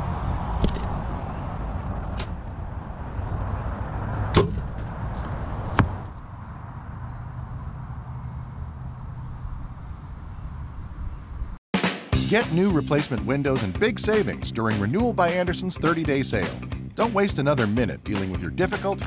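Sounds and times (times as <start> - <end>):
arrows loosed and striking: 2.1 - 2.4.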